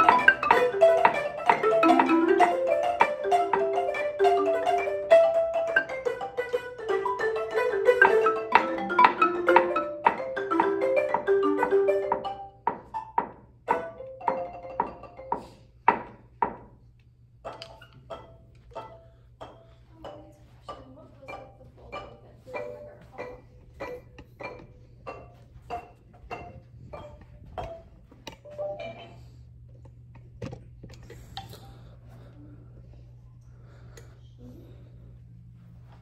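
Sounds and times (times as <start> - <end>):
marimba notes: 0.0 - 16.2, 17.4 - 29.7.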